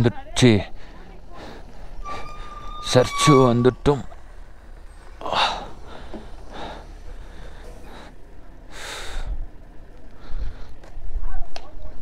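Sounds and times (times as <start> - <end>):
man breathing heavily: 0.7 - 2.7, 4.3 - 11.0.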